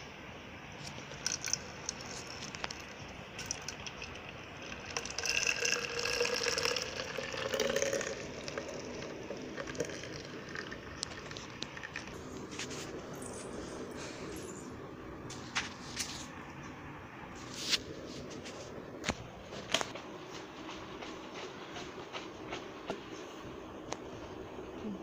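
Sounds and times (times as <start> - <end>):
milk pouring into jar: 0.9 - 12.2.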